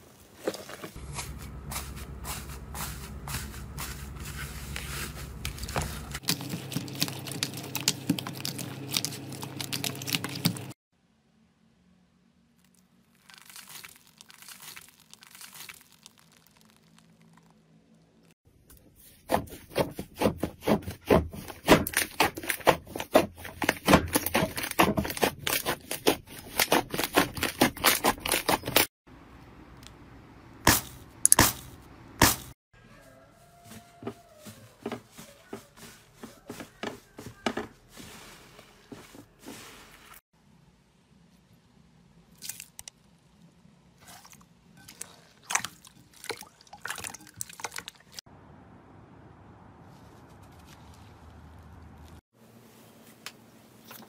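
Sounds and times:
slime squelching and popping: 13.1s - 17.6s.

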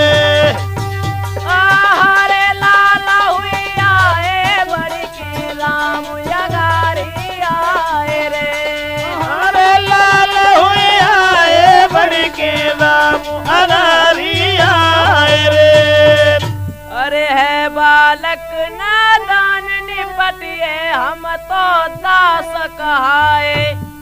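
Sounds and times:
hand drum beats: 0.0s - 16.9s
folk melody with sliding notes: 0.0s - 24.0s.

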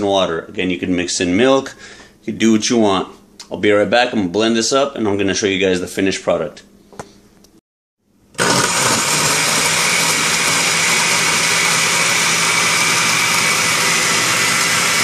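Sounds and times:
blender motor running: 8.4s - 15.0s.

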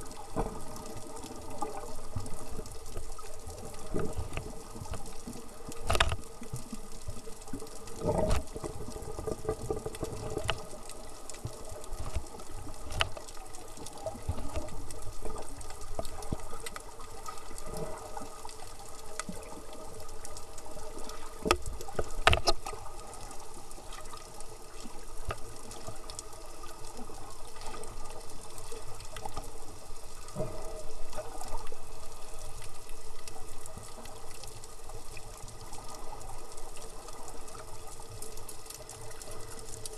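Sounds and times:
faint steady hum: 0.0s - 39.9s
underwater watery wash: 0.0s - 39.9s.

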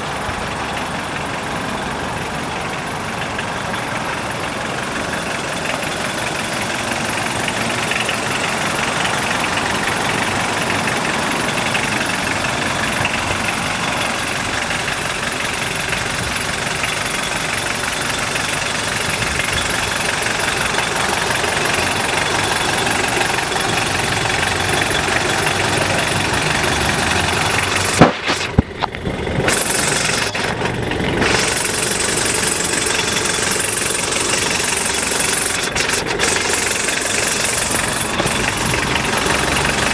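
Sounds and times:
diesel engine idling: 0.0s - 39.9s
sharp knock: 27.9s - 28.9s.

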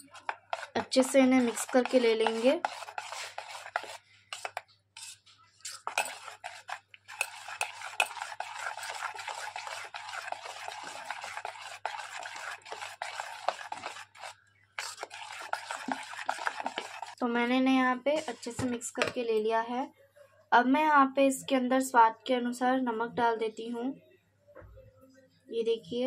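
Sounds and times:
batter stirred in metal bowl: 0.0s - 19.2s.

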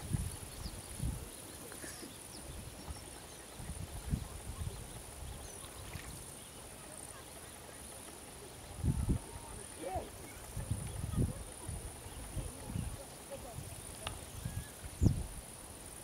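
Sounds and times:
steady high hiss: 0.0s - 16.0s
faint bird chirps: 14.0s - 15.3s.

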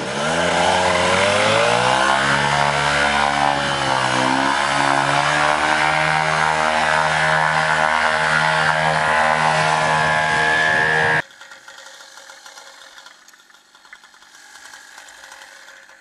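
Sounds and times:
paramotor engine drone: 0.0s - 11.2s.

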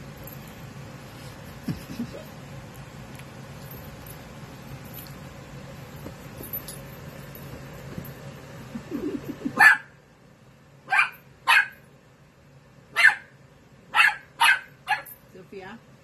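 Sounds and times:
puppy barking: 9.6s - 10.0s, 10.9s - 11.8s, 12.9s - 13.3s, 13.9s - 15.2s.

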